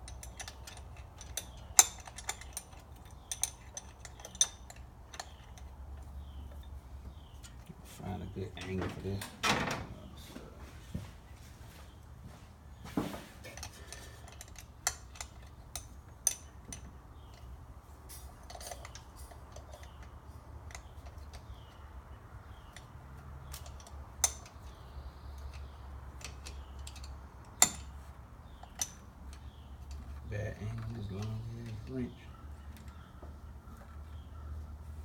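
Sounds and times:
hand tools clinking on metal: 0.0s - 6.8s, 13.4s - 17.5s, 18.1s - 21.8s, 22.6s - 33.1s.

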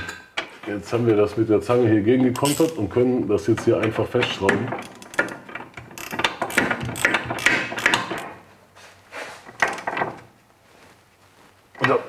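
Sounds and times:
metal tools clinking: 2.3s - 3.0s, 4.5s - 8.3s
ratchet wrench clicking: 4.8s - 8.3s.

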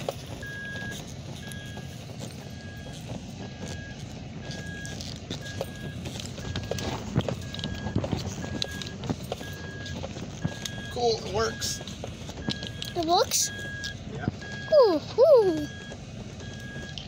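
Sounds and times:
truck driving rumble: 0.0s - 17.0s
warning chime beeping: 2.5s - 17.0s.

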